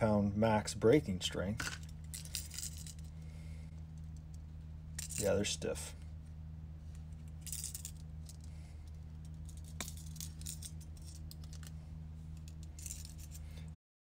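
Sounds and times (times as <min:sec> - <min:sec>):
low hum: 0:00.0 - 0:13.8
metallic clicks and scrapes: 0:06.9 - 0:11.8, 0:12.4 - 0:13.7.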